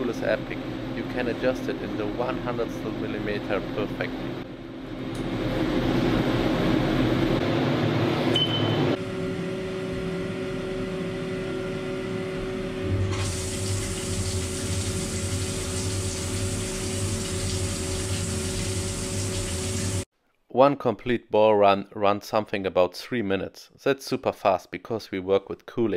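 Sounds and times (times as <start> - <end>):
machine spindle humming: 0.0 - 20.1.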